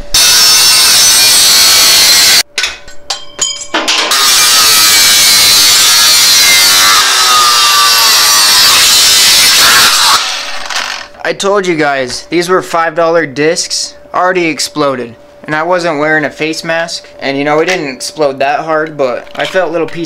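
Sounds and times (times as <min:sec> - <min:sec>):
angle grinder cutting steel: 0:00.1 - 0:02.4, 0:04.0 - 0:11.2.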